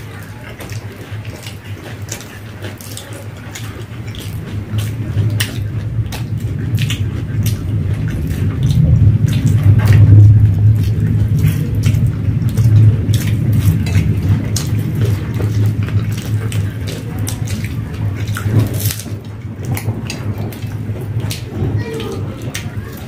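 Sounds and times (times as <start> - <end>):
crunchy food being chewed: 0.0 - 23.0
steady low hum: 0.0 - 23.0.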